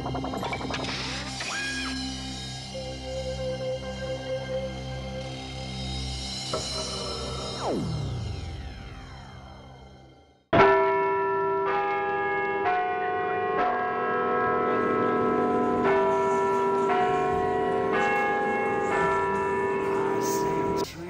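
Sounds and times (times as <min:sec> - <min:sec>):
bells ringing a slow melody: 0:10.6 - 0:20.9.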